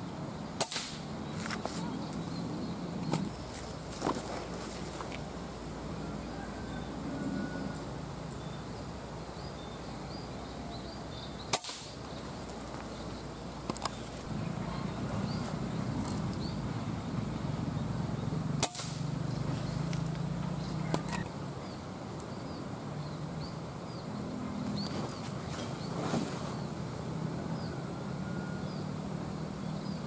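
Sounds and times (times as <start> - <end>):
steady background hum: 0.0 - 28.2
air rifle shots: 0.6 - 1.1, 11.5 - 12.0, 18.6 - 19.1.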